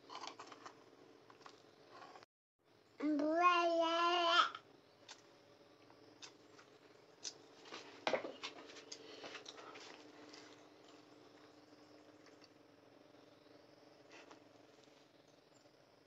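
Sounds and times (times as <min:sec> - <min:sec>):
faint steady hum: 0:00.0 - 0:16.0
child's voice: 0:03.0 - 0:04.6.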